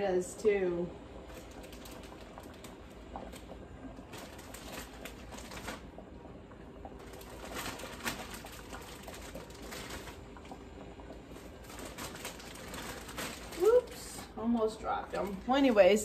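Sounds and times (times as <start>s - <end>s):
plastic bag rustling: 1.3s - 3.4s, 4.0s - 6.0s, 7.0s - 10.4s, 11.2s - 16.0s.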